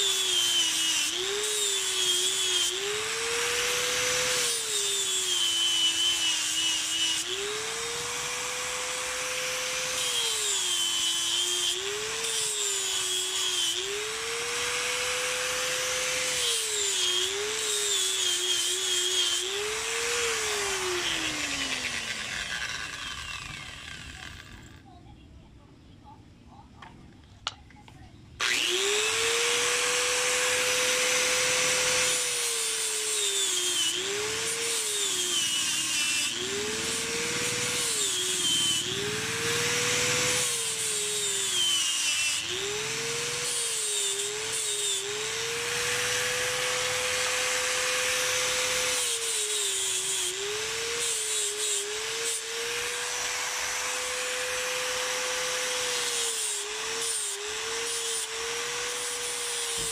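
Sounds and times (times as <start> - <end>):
angle grinder motor whine: 0.0 - 24.8, 28.4 - 59.9
gritty grinding hiss: 15.7 - 24.9, 34.4 - 59.9.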